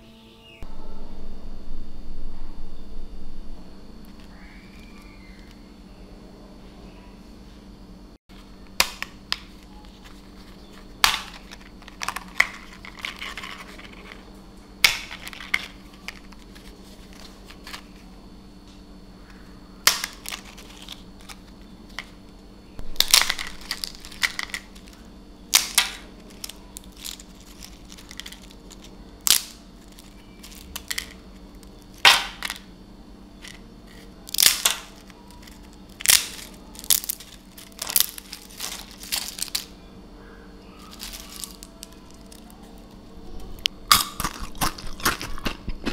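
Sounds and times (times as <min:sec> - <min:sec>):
crisp crepes snapping: 0:08.7 - 0:14.2, 0:23.0 - 0:32.6, 0:33.4 - 0:39.7, 0:43.9 - 0:45.9.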